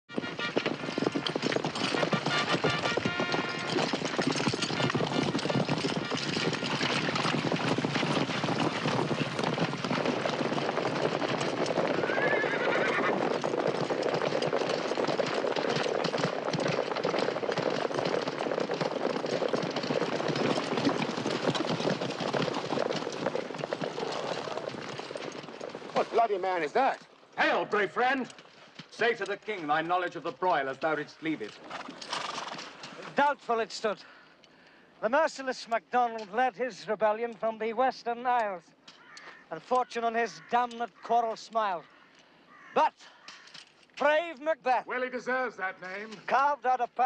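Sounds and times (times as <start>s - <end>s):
horses neighing: 0.1s - 26.4s, 30.6s - 33.2s, 38.9s - 43.8s
horse hooves clattering: 0.1s - 34.6s, 35.7s - 47.0s.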